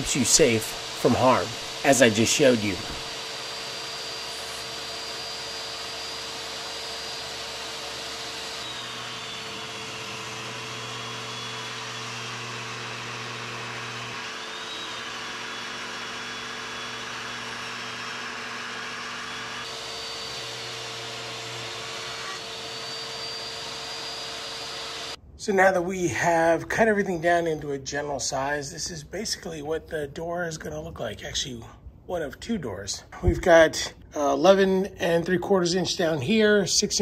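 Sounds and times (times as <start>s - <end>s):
table saw ripping wood: 0.0s - 25.2s.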